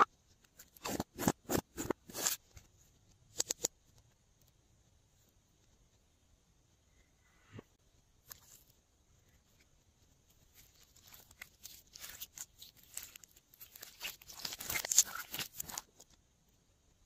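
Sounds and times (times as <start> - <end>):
slime crackling and snapping: 11.1 - 15.9.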